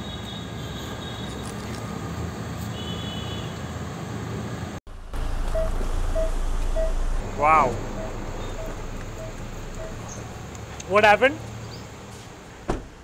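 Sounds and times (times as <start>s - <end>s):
car engine rumbling: 4.9s - 13.0s
short beeps: 5.2s - 10.3s.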